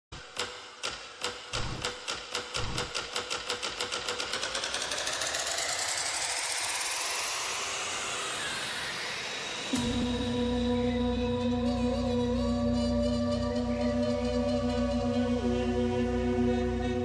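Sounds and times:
clicks speeding into rattle: 0.2 - 6.7.

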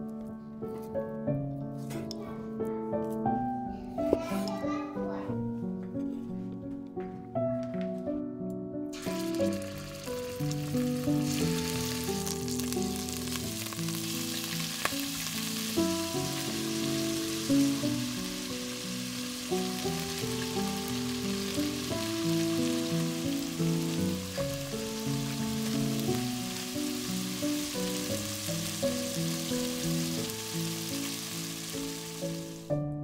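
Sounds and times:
background music: 0.0 - 33.0
meat sizzling in oil: 9.0 - 32.7.

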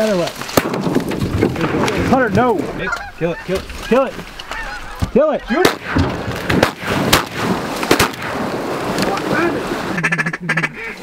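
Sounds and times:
shotgun blasts: 0.6 - 2.1, 5.6 - 9.0.

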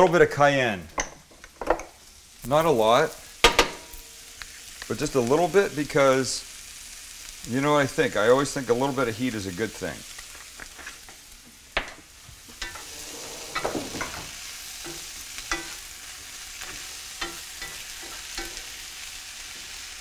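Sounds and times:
vegetables sizzling in a pan: 1.6 - 20.0
utensil scraping a pan: 12.6 - 15.8.

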